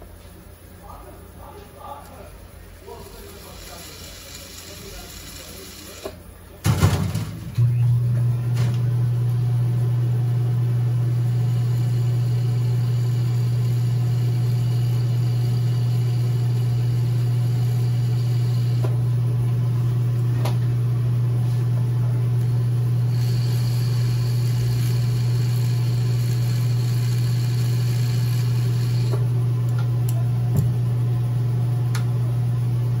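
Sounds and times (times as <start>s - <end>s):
high tool whine: 2.8s - 6.2s, 10.7s - 19.1s, 22.3s - 29.4s
polishing motor humming: 2.9s - 6.2s, 8.2s - 30.8s.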